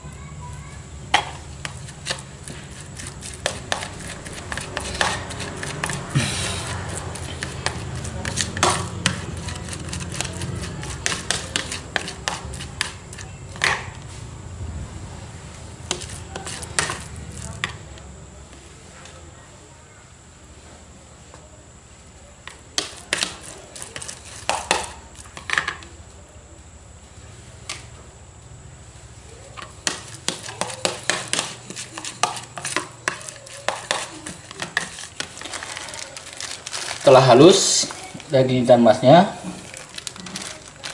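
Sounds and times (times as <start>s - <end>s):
metal spoon scraping plastic bowl: 1.6s - 13.8s, 15.9s - 17.5s, 29.6s - 38.1s.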